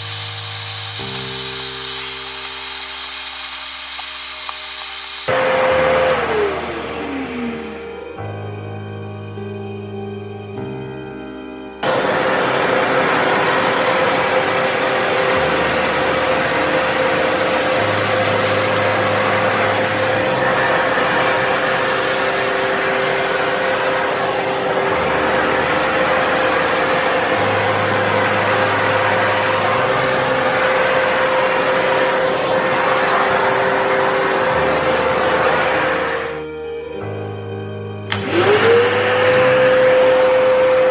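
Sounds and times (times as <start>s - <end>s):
vacuum cleaner running: 0.0s - 8.8s, 11.8s - 37.3s, 38.0s - 40.9s.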